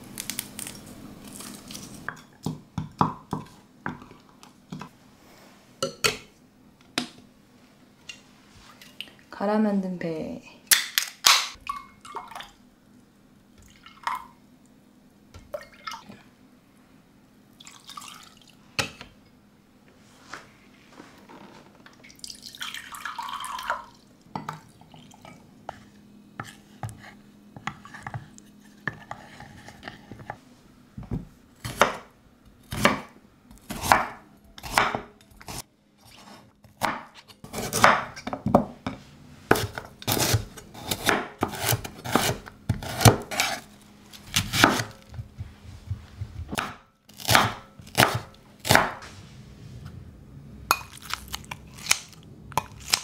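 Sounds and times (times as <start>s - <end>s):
liquid pouring: 17.6s - 18.6s, 22.0s - 24.0s
knife chopping on a wooden board: 33.7s - 35.6s, 39.5s - 43.6s, 44.3s - 45.0s, 46.4s - 49.0s.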